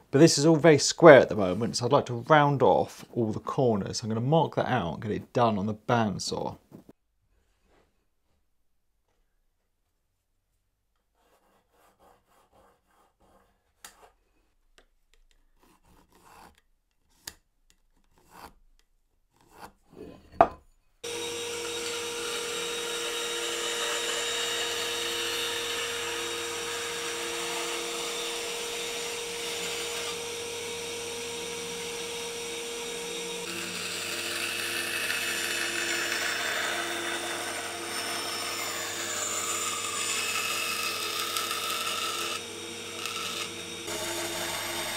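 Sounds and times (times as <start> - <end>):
bandsaw cutting plywood: 21.0 - 44.9.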